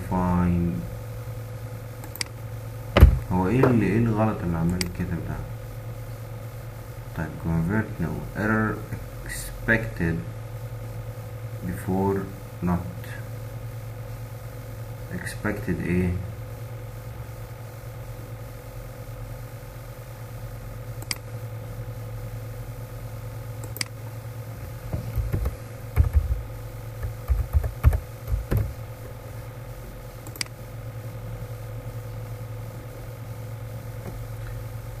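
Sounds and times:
low electrical hum: 0:00.0 - 0:35.0
mouse clicks: 0:21.0 - 0:21.2, 0:23.6 - 0:24.0, 0:30.2 - 0:30.6
keyboard typing: 0:25.0 - 0:28.8.

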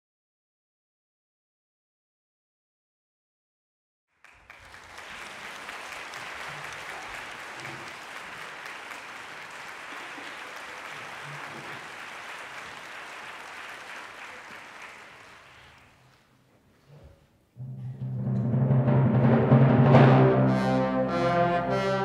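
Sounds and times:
audience applauding: 0:04.2 - 0:16.2.

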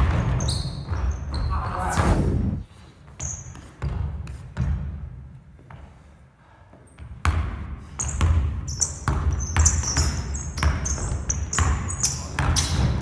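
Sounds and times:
sneakers squeaking: 0:00.0 - 0:02.0, 0:03.0 - 0:05.0, 0:06.8 - 0:13.0
basketball dribbling on wooden floor: 0:03.3 - 0:05.8, 0:07.0 - 0:13.0.

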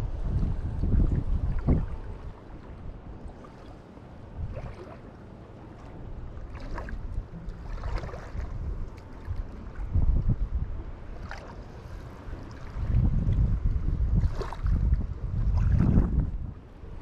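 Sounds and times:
water lapping at shore: 0:00.0 - 0:17.0
wind rumbling on microphone: 0:00.0 - 0:17.0
splashy rustles: 0:06.5 - 0:09.6.

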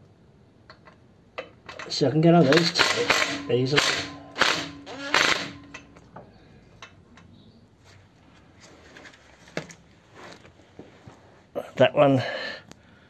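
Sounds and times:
clinks of hand tools and nuts: 0:00.7 - 0:07.3
tools clattering: 0:00.7 - 0:07.3.

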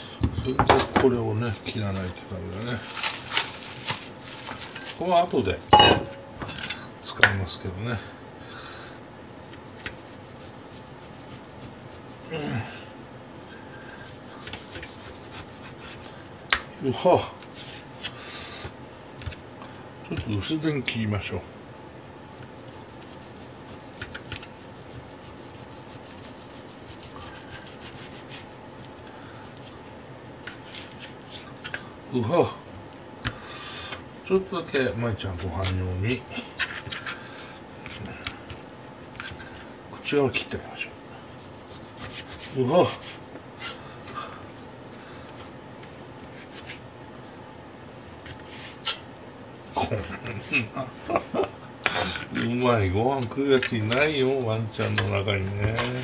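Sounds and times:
low background hiss: 0:00.0 - 0:36.6
faint steady hum: 0:00.0 - 0:56.0.

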